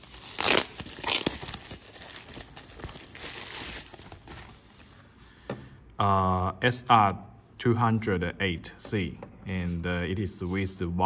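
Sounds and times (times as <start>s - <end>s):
bubble wrap crinkling: 0.0s - 5.1s.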